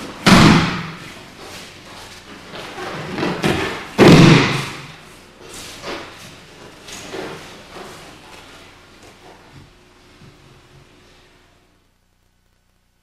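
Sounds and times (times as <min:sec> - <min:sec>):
body thudding on mat: 0:03.0 - 0:04.9.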